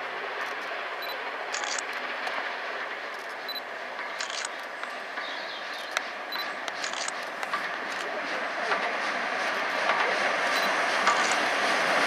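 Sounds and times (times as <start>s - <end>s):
steam locomotive rushing: 0.0s - 12.0s
sharp clicks: 1.6s - 1.9s, 4.0s - 5.0s, 5.8s - 8.1s.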